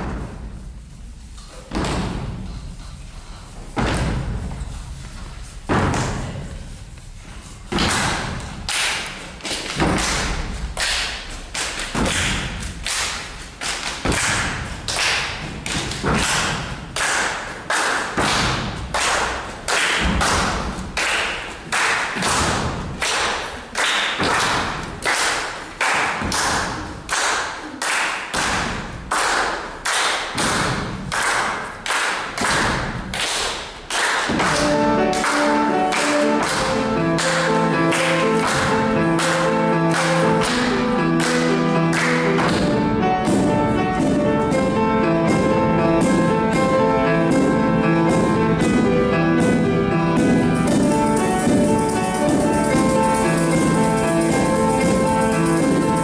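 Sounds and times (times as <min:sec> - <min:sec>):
heavy thumps: 0:01.6 - 0:02.9, 0:03.6 - 0:06.7
children clapping hands: 0:07.8 - 0:42.7.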